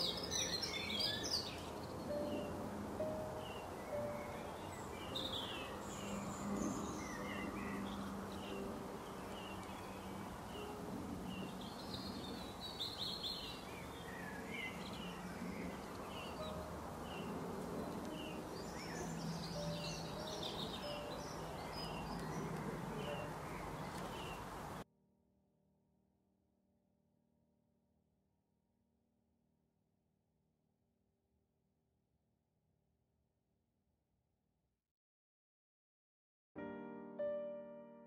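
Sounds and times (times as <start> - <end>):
birds chirping: 0.0 - 24.8
outdoor background hiss: 0.0 - 24.8.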